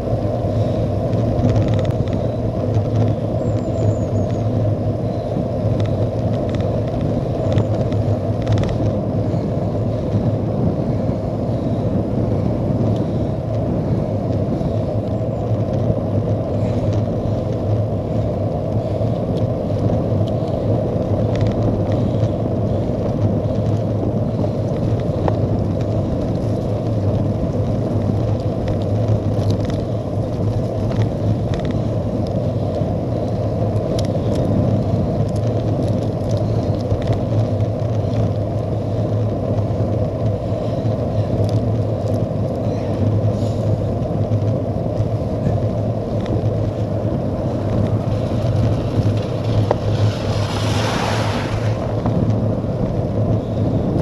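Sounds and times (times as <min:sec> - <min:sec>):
bike tyres on wet road: 0:00.0 - 0:54.0
wind rushing over microphone: 0:00.0 - 0:54.0.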